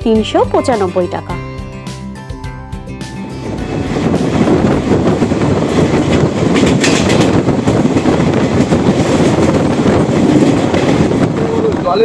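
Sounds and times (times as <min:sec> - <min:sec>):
train wheels rumbling on track: 0:02.9 - 0:12.0
sharp train clack: 0:03.1 - 0:12.0
rail-joint clatter: 0:03.9 - 0:12.0.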